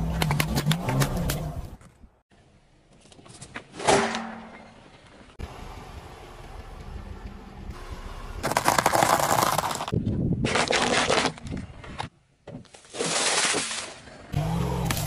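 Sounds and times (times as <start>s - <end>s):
tyre crushing small objects: 8.4s - 14.0s.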